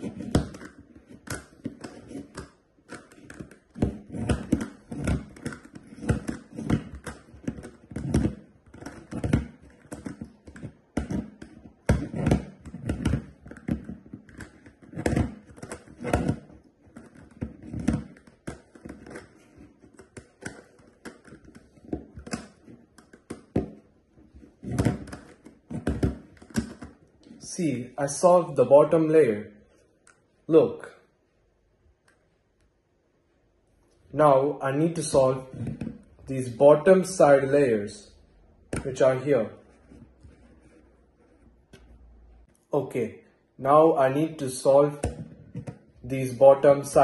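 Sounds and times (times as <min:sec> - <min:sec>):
plastic puzzle clicking: 0:00.4 - 0:23.8.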